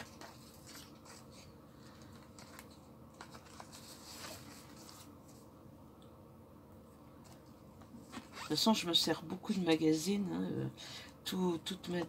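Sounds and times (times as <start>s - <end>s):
paper rustling: 0.0s - 5.5s.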